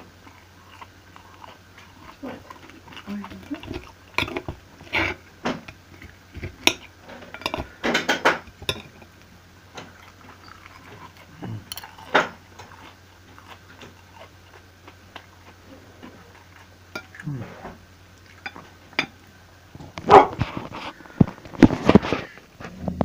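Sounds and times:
knife and fork clinking on plate: 11.7 - 12.3.

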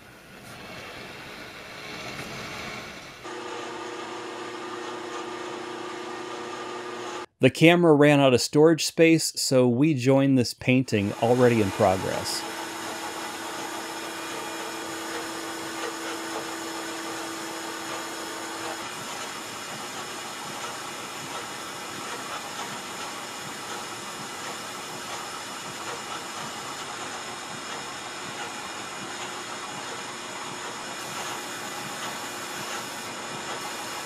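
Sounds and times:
paint spray gun hissing: 11.1 - 21.6, 31.0 - 34.0.

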